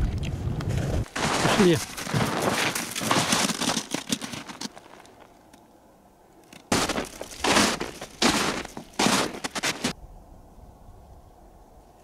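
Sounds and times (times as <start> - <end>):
footsteps crunching on icy snow: 0.9 - 5.4, 6.6 - 10.0.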